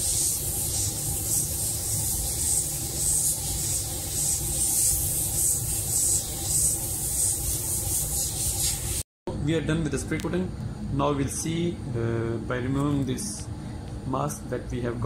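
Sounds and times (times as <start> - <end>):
airbrush air hiss: 0.0 - 9.0.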